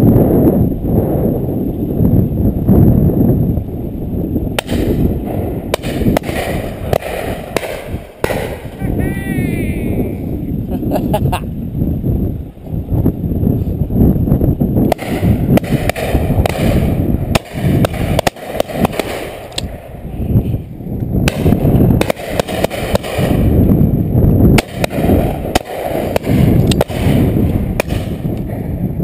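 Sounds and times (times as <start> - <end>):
wind buffeting microphone: 0.0 - 29.0
sharp clicks and cracks: 4.6 - 8.8, 14.9 - 19.9, 24.6 - 28.6.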